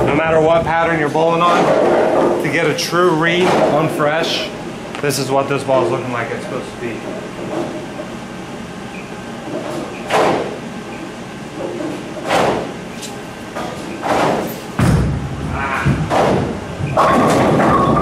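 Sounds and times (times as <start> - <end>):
bowling ball rolling: 13.6 - 18.0
loud echoing knocks: 14.0 - 18.0.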